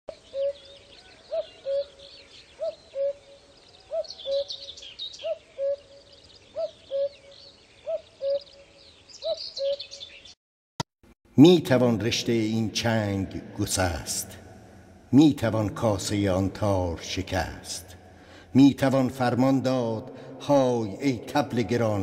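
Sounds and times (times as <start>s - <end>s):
cuckoo calling: 0.1s - 10.4s
small birds twittering: 0.1s - 10.4s.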